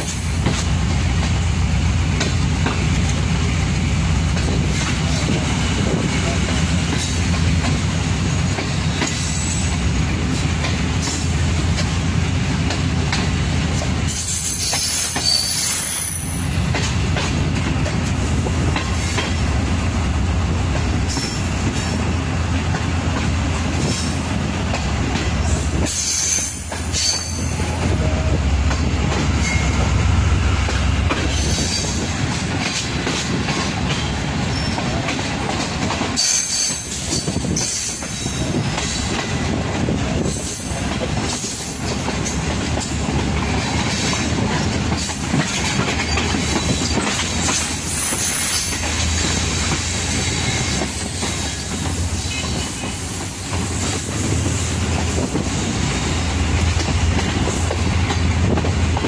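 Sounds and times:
train rumbling on rails: 0.0 - 59.0
wheels clacking over rail joints: 4.2 - 19.8, 20.6 - 59.0
train wheels squealing: 8.2 - 9.8, 14.0 - 16.6, 21.0 - 22.0, 25.4 - 27.8, 29.3 - 29.9, 31.2 - 32.0, 34.0 - 35.0, 36.1 - 39.1, 45.8 - 48.9, 50.0 - 54.4.

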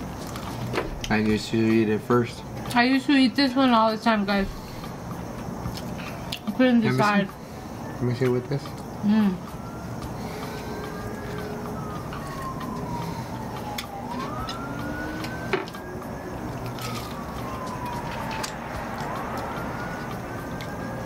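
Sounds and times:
background traffic: 0.0 - 21.0
emergency siren wailing: 7.7 - 21.0.

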